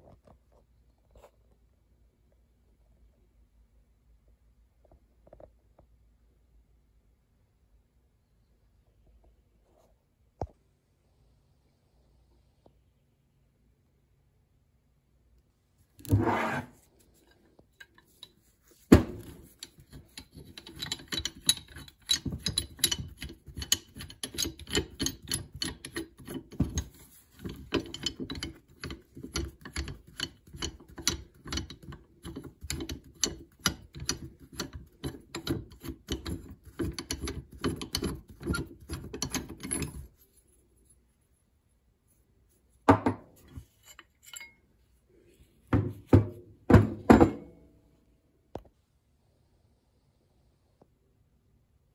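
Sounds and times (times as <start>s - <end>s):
metal nut clicking and scraping: 16.0s - 41.0s, 42.1s - 44.8s
knock: 42.9s - 43.2s, 45.7s - 47.5s.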